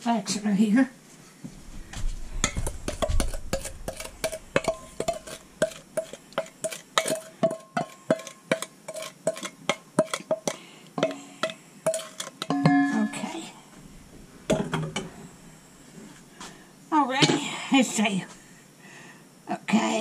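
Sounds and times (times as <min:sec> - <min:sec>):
spatula knocking on metal bowl: 0:02.4 - 0:08.7, 0:09.3 - 0:12.8
spatula scraping batter from bowl: 0:02.6 - 0:10.2.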